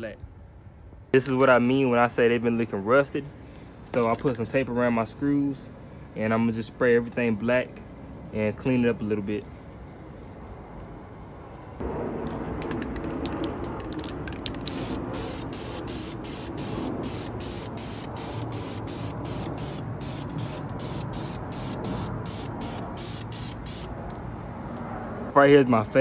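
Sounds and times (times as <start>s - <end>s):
spray paint can hissing: 13.0s - 24.1s.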